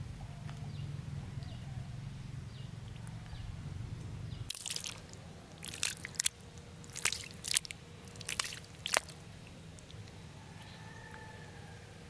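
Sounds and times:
fish squelching in wet mud: 4.5 - 10.1.

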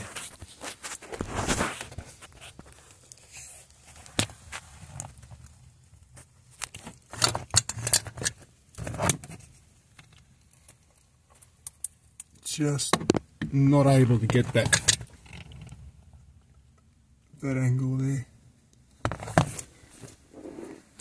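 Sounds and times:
plastic ducting clicks and knocks: 10.0 - 15.8.

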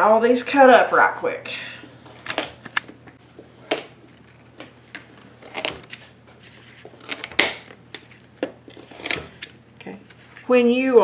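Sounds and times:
knife cutting carrots: 5.3 - 6.0, 6.6 - 9.6.

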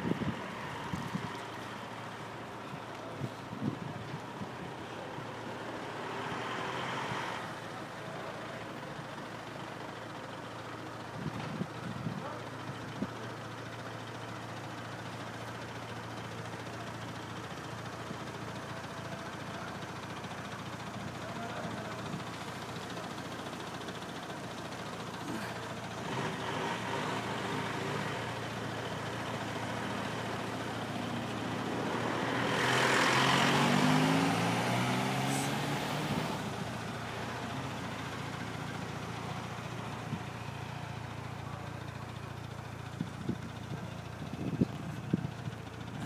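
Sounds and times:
car engine idling: 0.0 - 46.0
car engine passing close by: 25.9 - 40.2.

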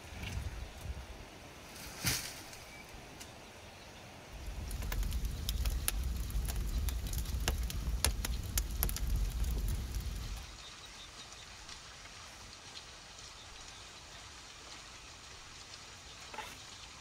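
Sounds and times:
low fire rumble: 0.0 - 1.9, 4.2 - 10.6
brushwood fire crackling: 4.3 - 16.5.

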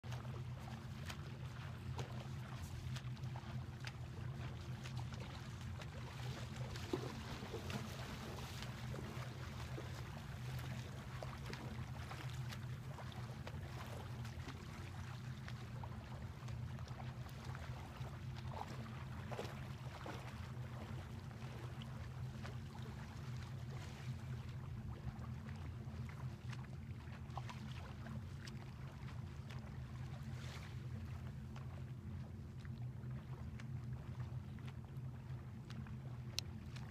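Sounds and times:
small waves lapping: 0.0 - 36.9.

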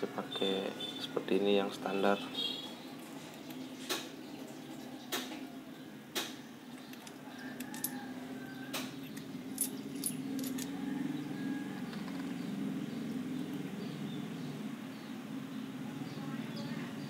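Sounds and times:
small metal parts clinking: 6.7 - 10.8.

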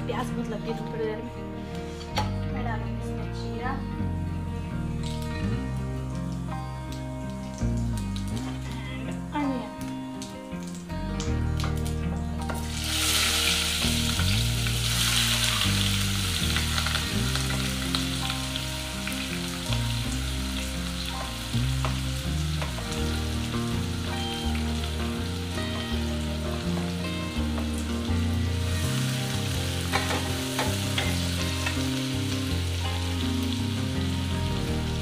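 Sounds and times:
vegetables sizzling in hot oil: 12.4 - 35.0.

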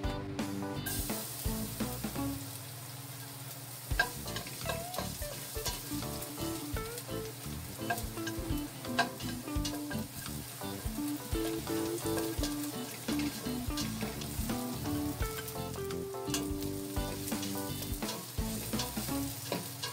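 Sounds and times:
garlic sizzling in hot oil: 0.4 - 19.9.

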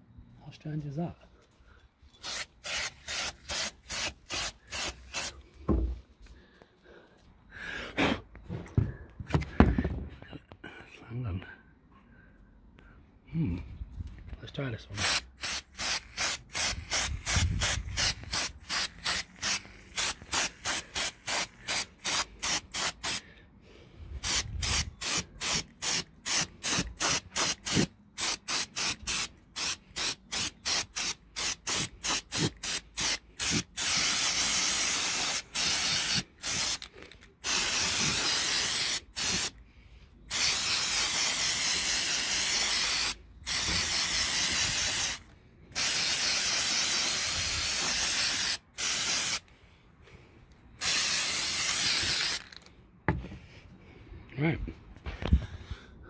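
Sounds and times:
spray paint can spraying: 2.2 - 5.4, 15.0 - 23.2, 24.2 - 39.6, 40.3 - 49.4, 50.8 - 52.7.

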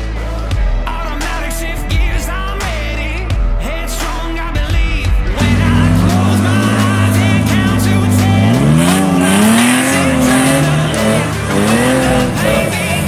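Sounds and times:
background music: 0.0 - 13.0
buggy engine revving: 5.2 - 13.0.

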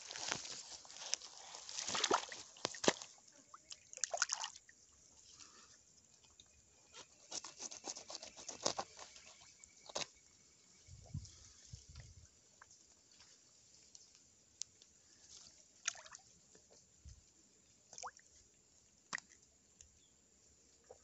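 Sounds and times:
pond water splashing: 0.0 - 4.8, 15.7 - 16.4, 17.8 - 18.4.

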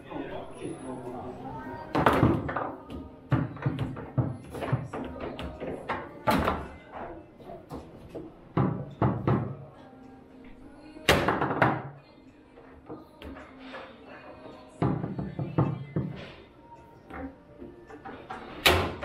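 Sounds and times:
background music: 0.0 - 19.0.

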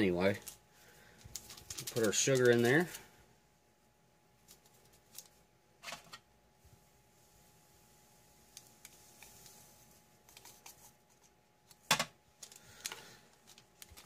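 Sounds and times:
paper packet rustling: 0.1 - 3.1, 4.4 - 6.2, 8.7 - 14.0.

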